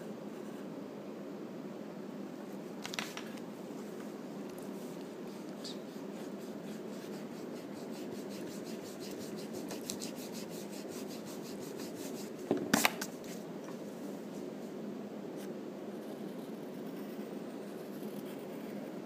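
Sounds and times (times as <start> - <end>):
pencil scratching on paper: 4.8 - 12.4, 16.3 - 18.9.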